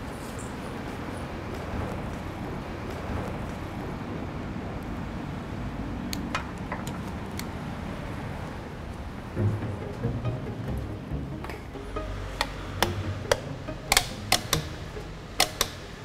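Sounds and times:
traffic hum: 0.0 - 16.0
metal door handle clicking: 12.8 - 14.8, 15.4 - 16.0.

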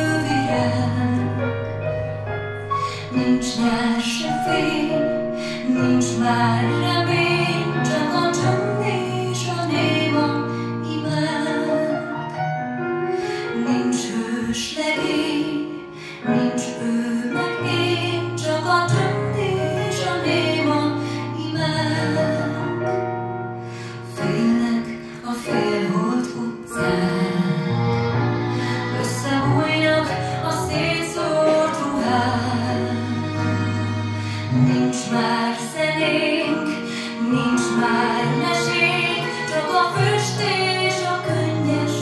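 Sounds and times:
woman singing: 0.0 - 1.6, 2.9 - 12.1, 13.4 - 23.0, 23.9 - 42.0
instrumental backing with bass: 0.0 - 11.2, 26.0 - 42.0.

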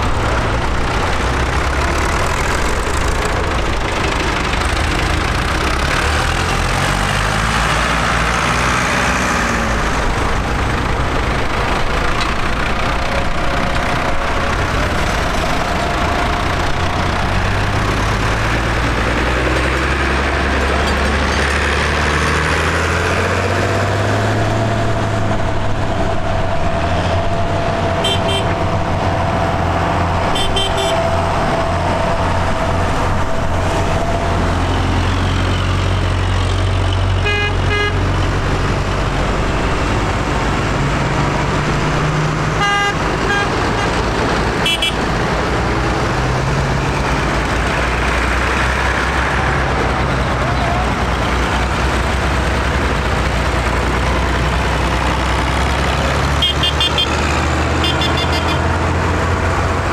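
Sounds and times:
tractor engines passing: 0.0 - 59.9
horn toots: 28.0 - 28.6, 30.3 - 31.1, 37.2 - 38.2, 42.5 - 44.0, 44.6 - 45.1, 56.4 - 58.7.

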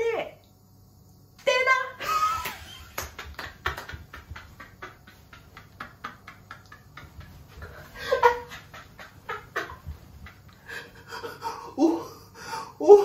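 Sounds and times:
man laughing breathily: 3.6 - 13.0.

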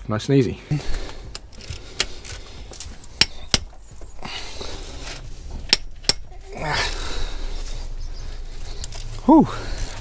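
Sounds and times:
ratchet rasping: 5.1 - 6.3.

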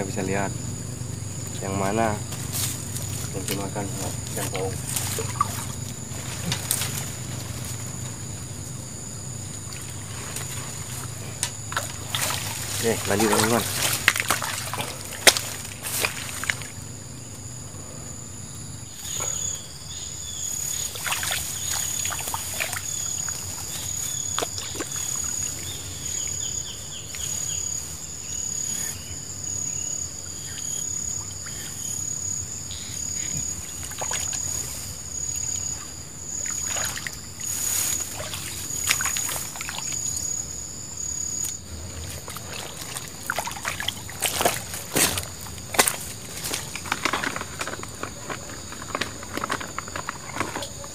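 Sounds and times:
insect droning: 0.0 - 50.9
rustling through grass: 2.2 - 8.9, 9.5 - 16.8, 20.4 - 28.6, 33.4 - 40.5.

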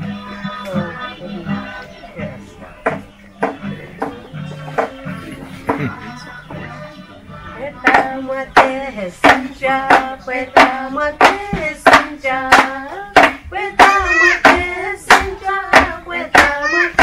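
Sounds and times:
voices singing together: 0.0 - 17.0
hand claps: 7.9 - 17.0.

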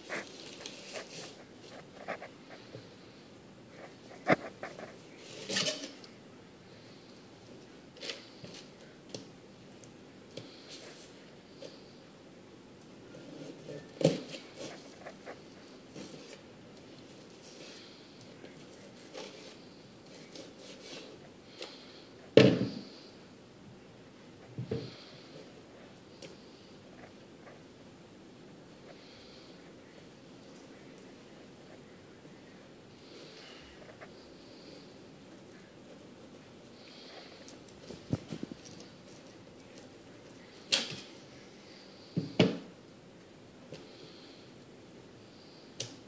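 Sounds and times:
faint clicks and scrapes: 0.0 - 3.0.

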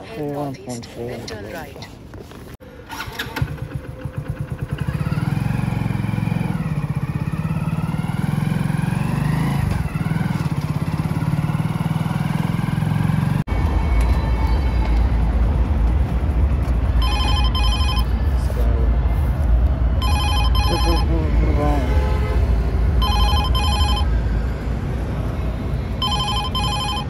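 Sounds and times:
motorcycle engine running: 3.0 - 13.4.

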